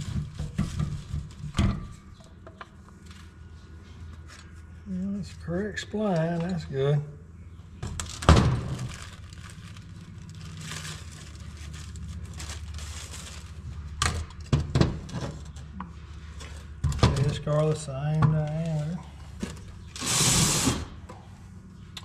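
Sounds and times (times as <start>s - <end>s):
plastic wrapping rustling: 0.0s - 1.6s, 7.9s - 14.5s.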